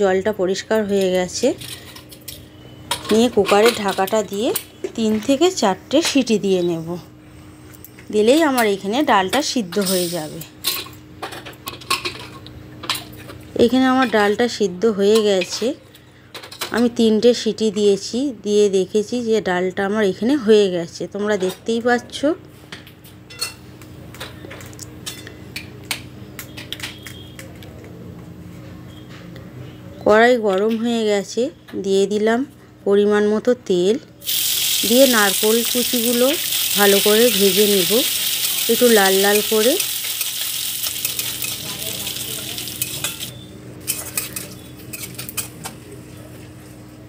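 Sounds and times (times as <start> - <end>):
coconut sizzling in hot oil: 34.2 - 43.3.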